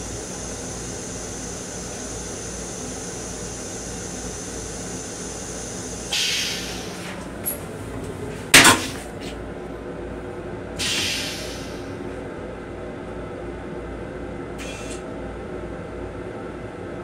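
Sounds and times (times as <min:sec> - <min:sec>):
air hissing: 0:00.0 - 0:07.2, 0:10.8 - 0:12.0, 0:14.6 - 0:15.0
steady hum: 0:00.0 - 0:16.8
sharp clunk: 0:08.6 - 0:09.1.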